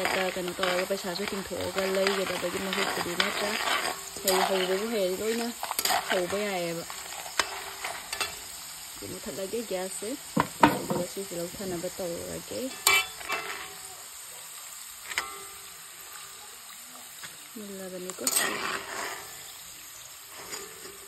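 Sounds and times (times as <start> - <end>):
metal spoon scraping and clinking: 0.0 - 8.5, 12.7 - 13.8, 18.2 - 19.6
food deep-frying in oil: 0.0 - 21.0.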